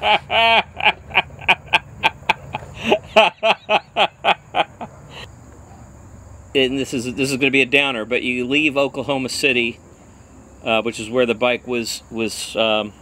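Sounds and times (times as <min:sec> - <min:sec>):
man laughing hard: 0:00.0 - 0:05.3.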